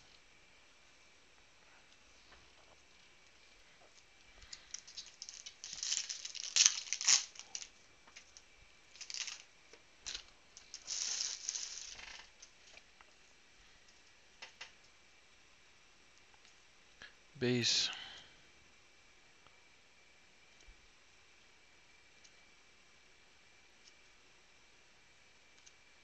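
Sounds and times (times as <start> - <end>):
foil wrapper crinkling and tearing: 4.4 - 9.5, 10.1 - 12.8.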